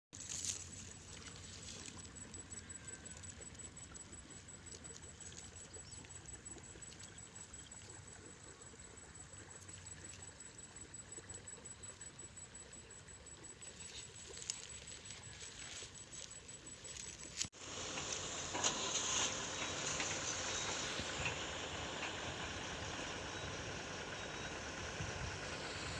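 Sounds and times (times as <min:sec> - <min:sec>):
dry grass rustling: 0:00.2 - 0:02.2, 0:13.7 - 0:20.6
high-pitched whine: 0:00.2 - 0:25.9.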